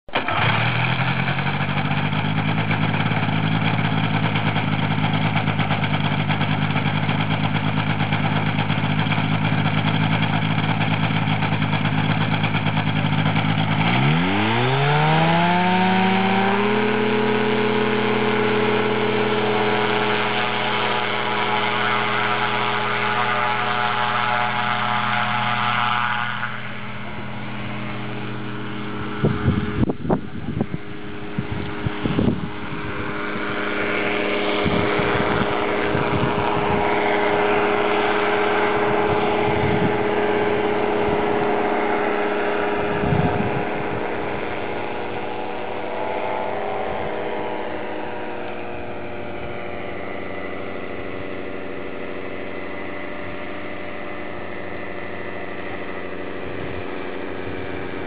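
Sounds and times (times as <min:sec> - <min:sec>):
small engine and propeller: 0:00.0 - 0:58.0.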